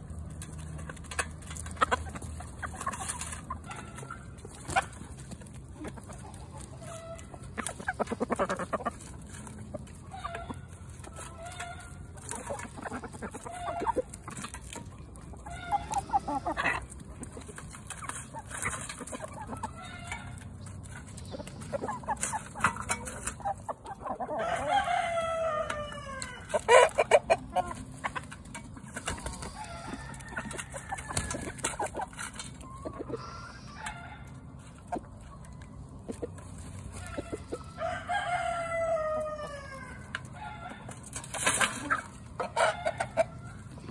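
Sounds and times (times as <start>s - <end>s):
chickens clucking: 0.0s - 43.9s
rooster crowing: 24.3s - 26.5s, 37.7s - 40.9s.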